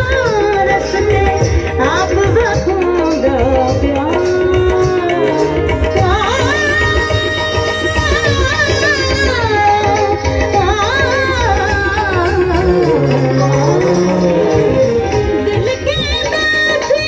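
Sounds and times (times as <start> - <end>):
steady drum beat: 0.0 - 17.0
person singing long wavering notes: 10.6 - 15.6.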